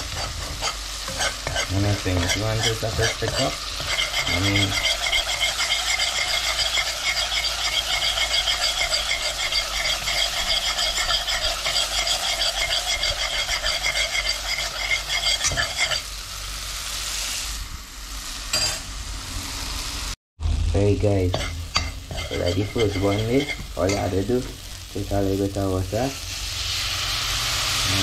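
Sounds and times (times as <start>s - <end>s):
spoon scraping a pot: 0.0s - 16.1s, 21.3s - 24.6s
paste sizzling in a pot: 0.0s - 28.0s.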